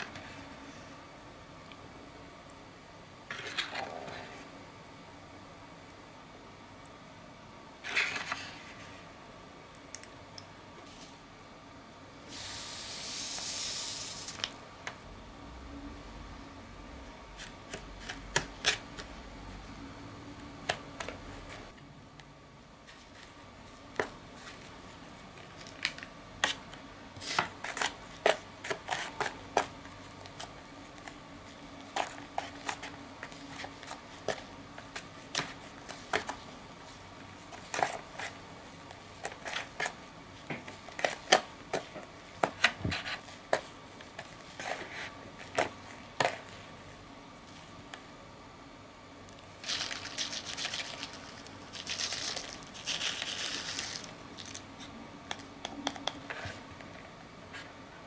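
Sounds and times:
candy shaken from packet: 49.6s - 54.6s.

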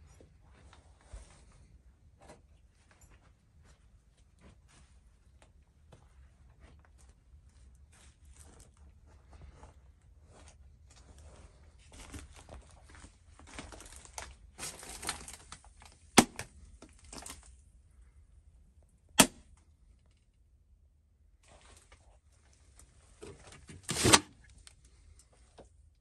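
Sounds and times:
rustling and crackling of debris: 6.6s - 17.6s.

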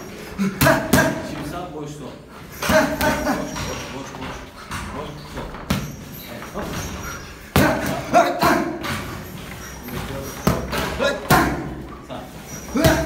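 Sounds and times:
boxing gloves hitting mitts: 0.4s - 1.6s, 2.6s - 3.8s, 7.4s - 9.3s, 9.9s - 11.8s, 12.7s - 13.0s.

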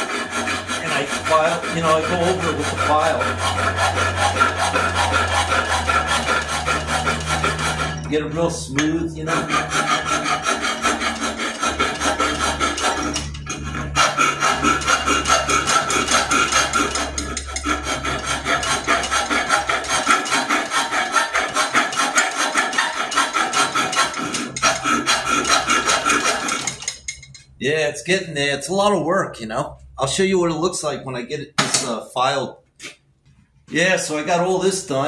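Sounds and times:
hand file rasping on metal: 0.0s - 27.6s.

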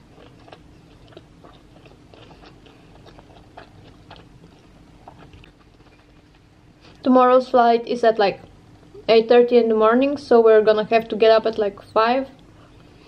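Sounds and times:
person chewing: 0.0s - 7.0s.

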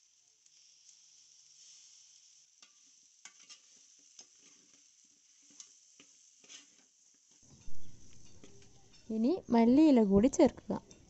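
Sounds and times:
chicken frying sizzle: 0.0s - 11.0s
metal spoon scraping pot: 7.6s - 9.2s.

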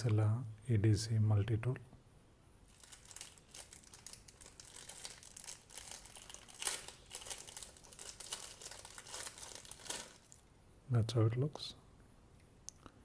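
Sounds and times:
plastic wrapper crinkling: 2.7s - 10.5s.

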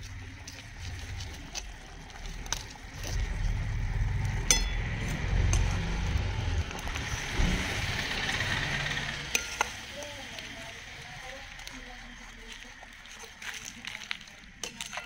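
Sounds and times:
low rumble: 0.0s - 13.0s
ringing metal clink: 4.5s - 4.8s.

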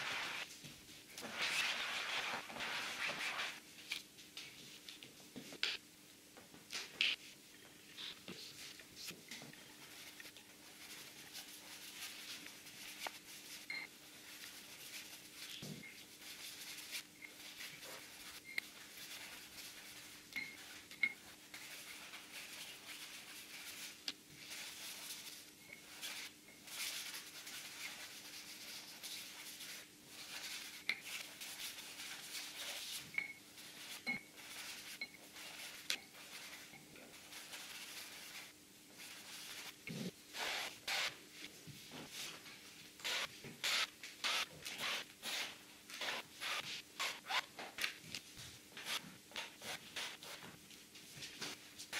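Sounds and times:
paint rubbing scratchy swishing: 0.0s - 0.5s, 1.2s - 3.6s.

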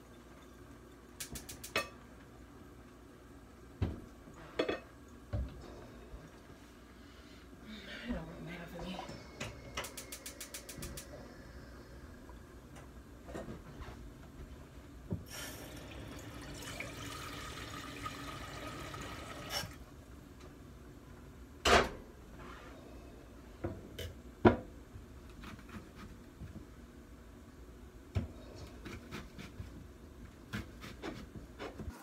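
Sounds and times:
faucet running into metal pot: 15.6s - 19.8s.

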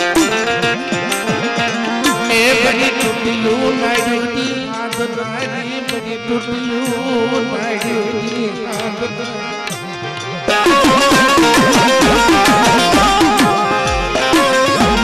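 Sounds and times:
drum strokes: 0.0s - 5.1s, 9.7s - 15.0s.

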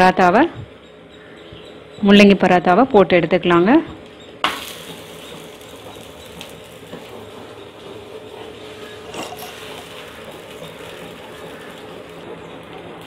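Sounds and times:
sizzling in oil: 4.4s - 12.8s.

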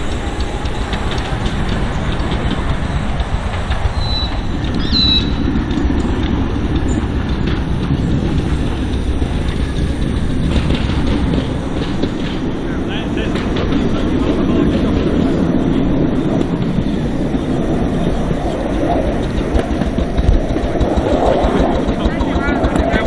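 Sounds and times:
train wheels rumbling on rails: 0.0s - 23.0s
bird chirping: 3.9s - 5.5s.

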